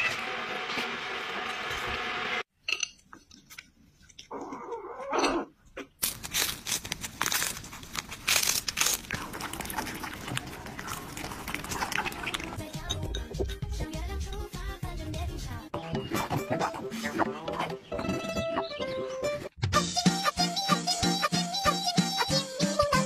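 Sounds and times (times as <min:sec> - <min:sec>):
cats crunching food: 0:06.0 - 0:12.8.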